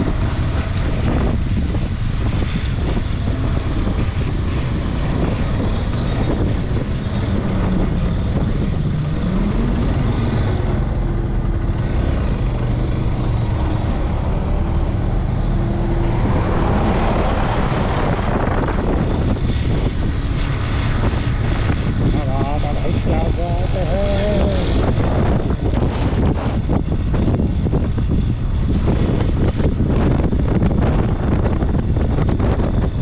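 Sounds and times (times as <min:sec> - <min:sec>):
diesel engine of wheel loader: 0:00.0 - 0:22.0
rushing noise: 0:00.0 - 0:33.0.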